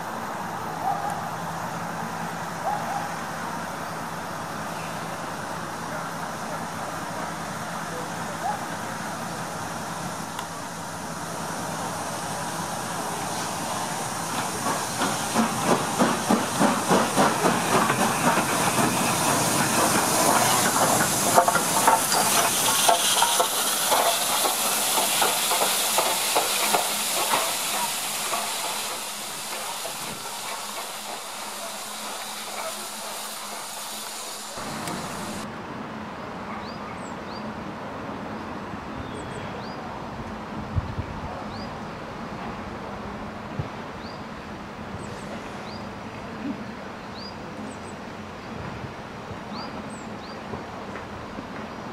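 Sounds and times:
loud steam hiss: 3.2 - 35.5
steam locomotive exhaust beats: 8.9 - 35.4.

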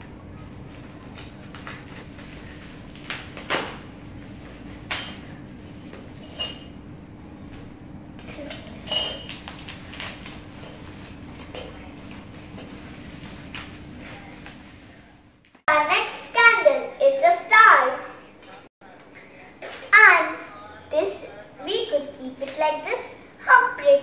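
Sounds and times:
steady low hum: 0.0 - 15.6
bubble wrap crinkling: 9.1 - 11.3.

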